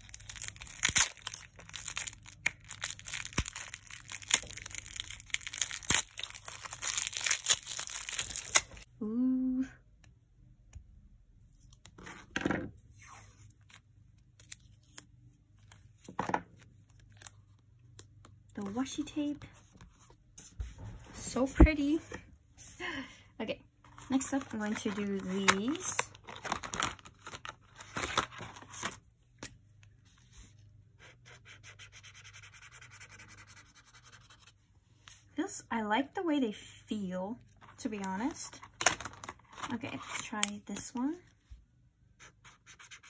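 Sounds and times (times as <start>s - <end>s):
tape ripping: 0.0s - 8.8s
marker scratching on paper: 31.0s - 34.6s, 42.2s - 43.0s.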